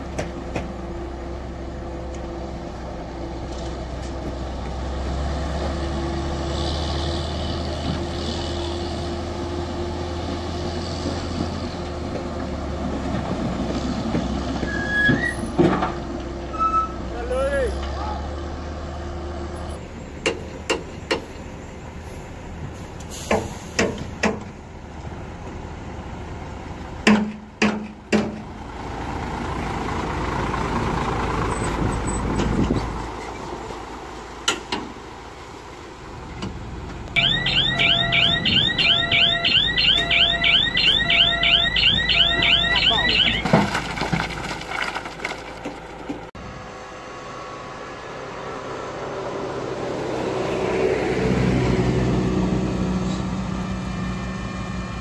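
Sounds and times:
diesel truck engine running: 17.4s - 55.0s
electronic alarm warbling: 37.2s - 43.5s
on-off beep: 37.2s - 43.5s
knocks and clatter: 43.3s - 46.3s.

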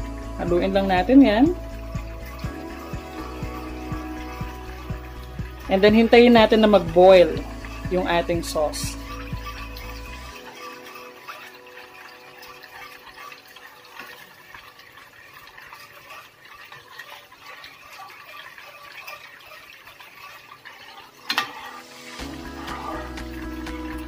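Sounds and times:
spoon stirring sauce in a pan: 7.3s - 23.9s.

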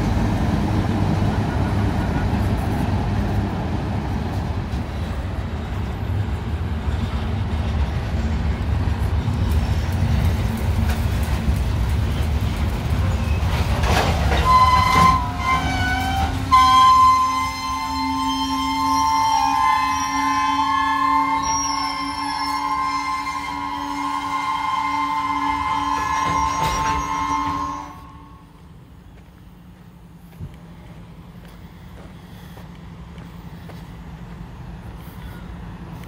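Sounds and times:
diesel train engine rumbling: 0.0s - 36.0s
locomotive air horn: 14.3s - 28.6s.

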